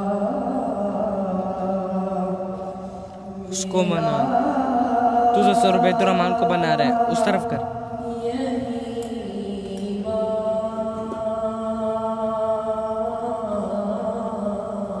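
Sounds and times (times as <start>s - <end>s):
man chanting unaccompanied: 3.4s - 9.6s.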